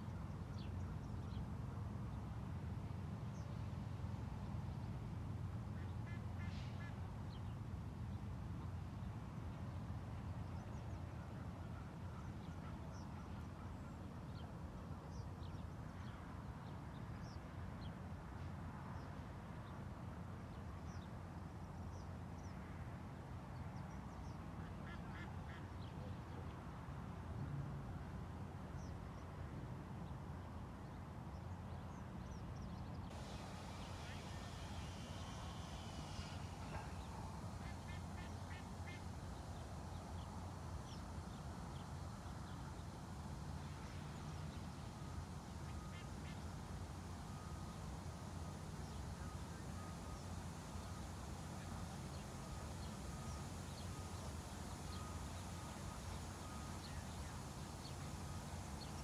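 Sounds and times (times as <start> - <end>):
waterfowl honking: 33.2 - 39.1.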